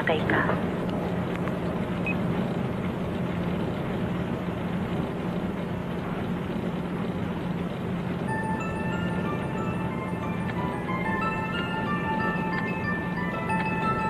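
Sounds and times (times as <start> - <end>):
dryers rumbling: 0.0 - 14.0
high chiming music notes: 8.3 - 14.0.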